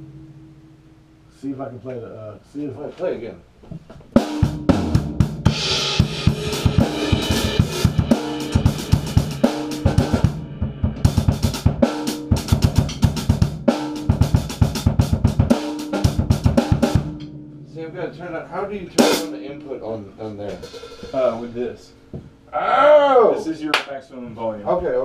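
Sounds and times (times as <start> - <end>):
drum kit beat: 3.9 - 22.4
cymbals: 4.2 - 22.1.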